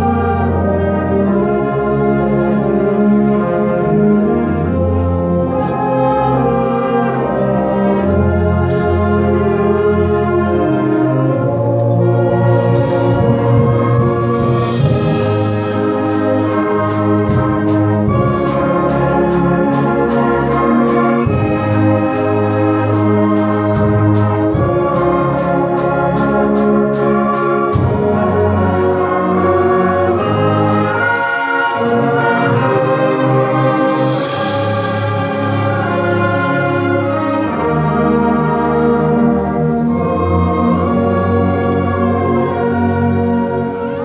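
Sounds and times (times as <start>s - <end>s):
concert band playing chords: 7.3s - 43.5s
percussion beat: 12.6s - 31.1s, 31.8s - 37.4s
cymbal crash: 33.8s - 36.8s.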